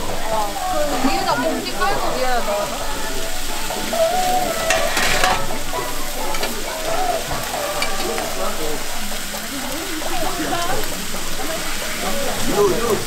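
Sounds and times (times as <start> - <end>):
steak sizzling in a pan: 0.0 - 13.0
stirring: 3.4 - 13.0.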